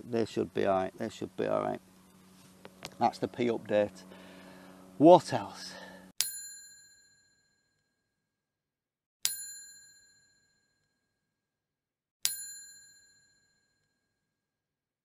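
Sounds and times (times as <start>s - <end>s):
small metal bell ding: 6.2s - 8.0s, 9.2s - 11.0s, 12.2s - 14.2s.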